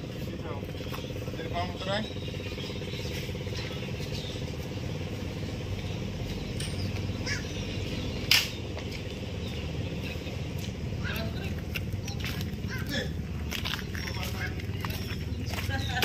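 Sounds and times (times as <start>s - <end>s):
engine humming: 0.0s - 16.0s
sharp click: 8.3s - 8.6s.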